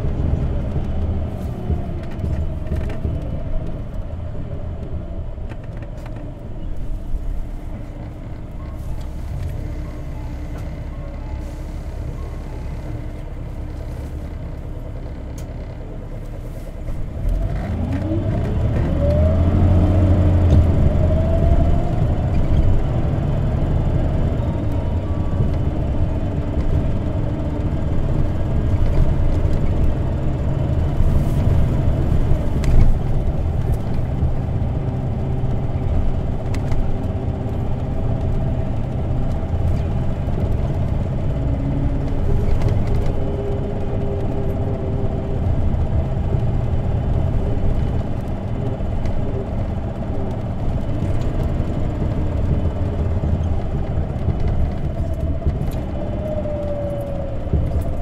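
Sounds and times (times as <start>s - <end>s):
bus engine and road rumble: 0.0s - 58.0s
faint whine: 6.5s - 15.0s.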